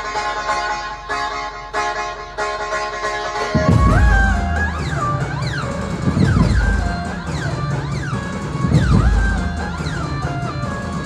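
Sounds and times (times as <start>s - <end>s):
band music over loudspeakers: 3.4s - 11.0s.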